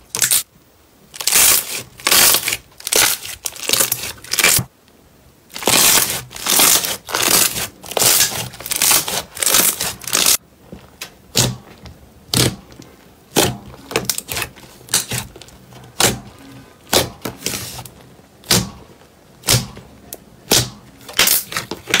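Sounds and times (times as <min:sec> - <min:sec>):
slime squelching: 0:05.5 - 0:19.8, 0:20.4 - 0:22.0.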